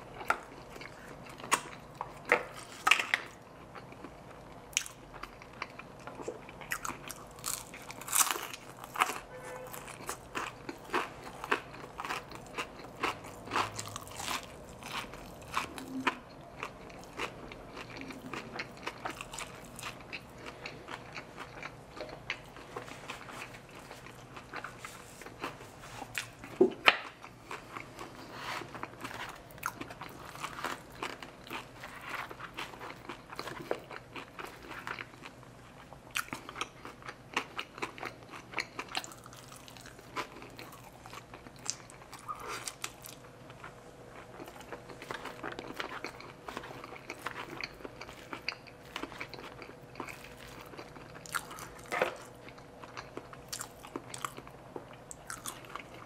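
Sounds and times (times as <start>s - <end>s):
chewing and biting food: 0.0s - 56.0s
crunching: 4.8s - 35.3s.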